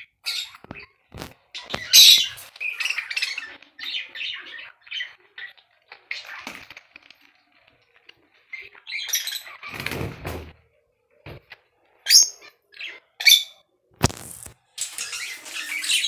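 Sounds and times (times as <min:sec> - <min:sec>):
bird wings splashing water: 0:14.8 - 0:16.0.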